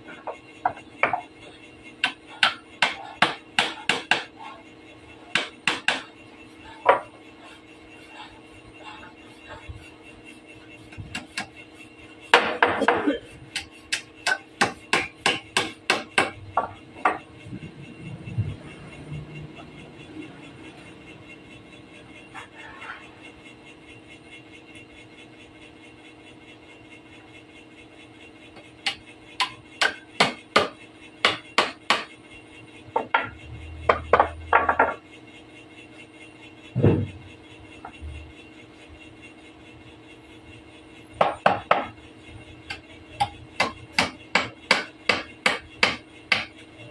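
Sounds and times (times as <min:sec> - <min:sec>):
hammer striking wood: 0:02.0 - 0:04.3, 0:05.3 - 0:06.1, 0:13.9 - 0:17.2, 0:28.9 - 0:32.1, 0:43.6 - 0:46.5.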